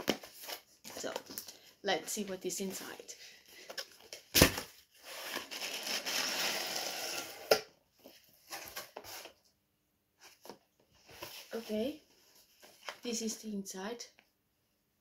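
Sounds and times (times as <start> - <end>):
cardboard tearing: 4.3 - 7.6.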